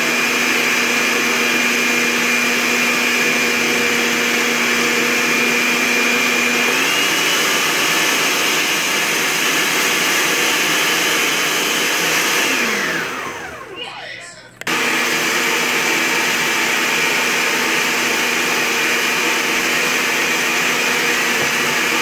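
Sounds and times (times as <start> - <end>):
blender motor running: 0.0 - 13.8, 14.6 - 22.0.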